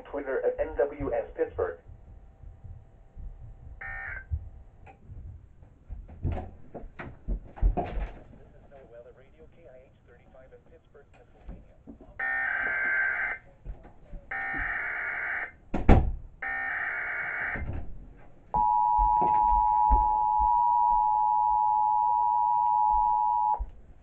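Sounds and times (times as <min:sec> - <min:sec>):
data tone bursts: 0:03.8 - 0:04.3, 0:18.6 - 0:23.6
two-tone attention signal: 0:03.8 - 0:04.3, 0:18.6 - 0:23.6.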